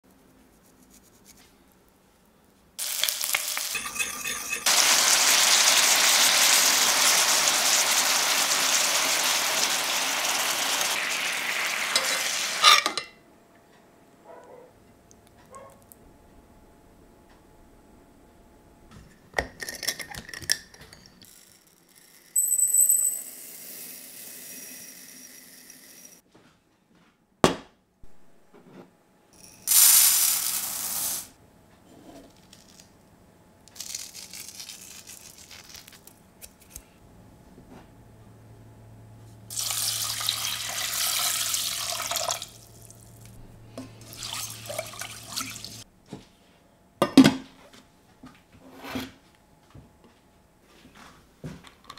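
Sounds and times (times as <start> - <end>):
water pouring into saucepan: 2.8 - 12.6, 39.5 - 43.0, 44.0 - 45.8
glass dish clinking: 3.5 - 5.1.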